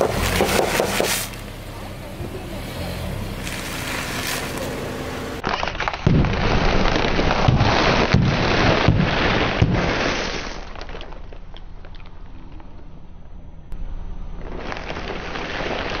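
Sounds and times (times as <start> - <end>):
bags bursting with sharp pops: 0.0 - 1.4, 5.4 - 11.5.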